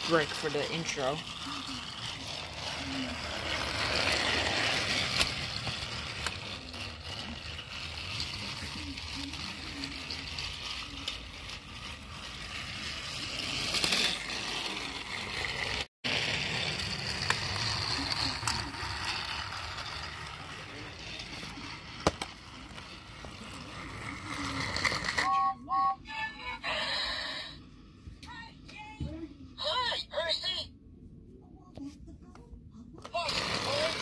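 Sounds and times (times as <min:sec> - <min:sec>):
toy train wheels rattling: 0:00.0 - 0:27.6, 0:33.0 - 0:34.0
toy train motor whirring: 0:00.0 - 0:29.0, 0:29.6 - 0:30.6, 0:33.0 - 0:34.0.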